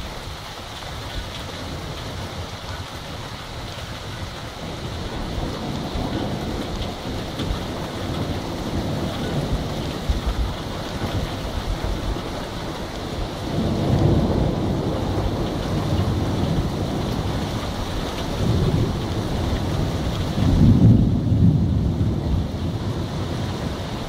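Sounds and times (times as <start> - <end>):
rain falling steadily: 0.0 - 24.0
thunder rumbling: 0.0 - 24.0.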